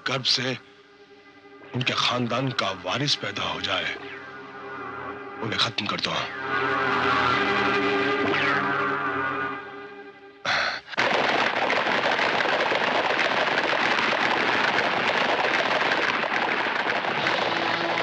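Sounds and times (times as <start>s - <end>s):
music: 0.0s - 11.0s, 16.2s - 18.0s
horses galloping: 11.0s - 18.0s.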